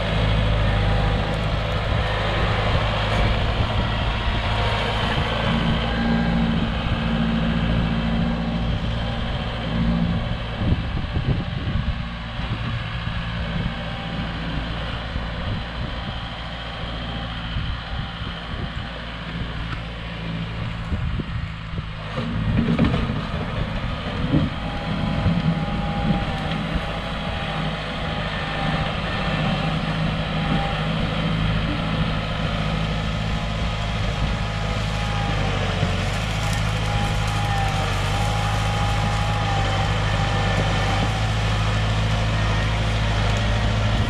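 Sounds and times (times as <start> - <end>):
tractor diesel engine under load: 0.0 - 44.0.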